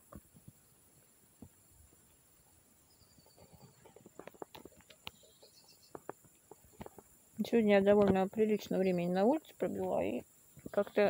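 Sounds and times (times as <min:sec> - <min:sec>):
faint ticks and taps: 0:00.0 - 0:02.2, 0:03.2 - 0:07.2, 0:07.9 - 0:08.3.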